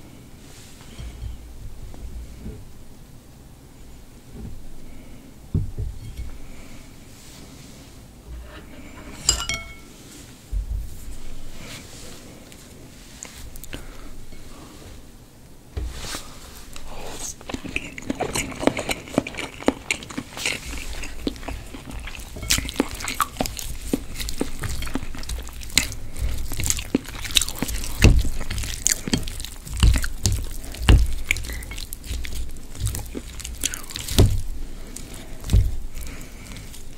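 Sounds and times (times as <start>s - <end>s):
dull thumps: 5.5s - 6.4s, 22.4s - 36.9s
crisp crunches: 16.0s - 36.9s
chewing noodles: 16.8s - 36.9s.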